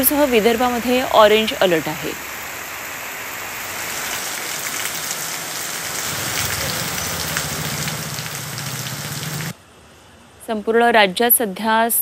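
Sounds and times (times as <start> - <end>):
heavy rain on a street: 0.0 - 9.6.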